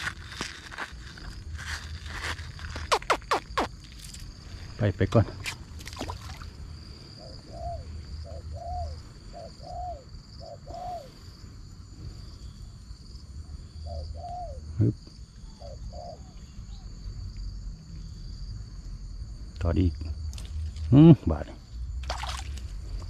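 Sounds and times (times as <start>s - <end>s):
insects trilling: 0.0s - 23.0s.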